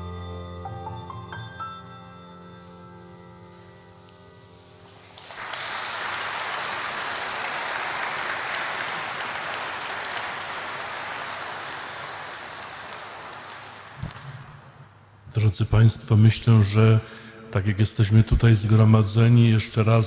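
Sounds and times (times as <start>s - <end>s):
audience applause: 4.9s - 14.8s.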